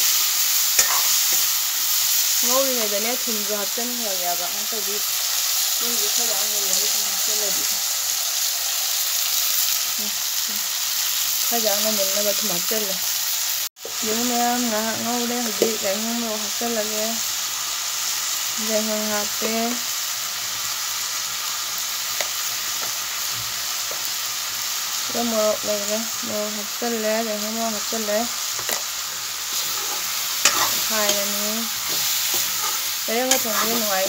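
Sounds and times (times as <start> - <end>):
vegetables sizzling in a wok: 0.0 - 34.0
metal spatula scraping: 0.6 - 2.4, 28.6 - 34.0.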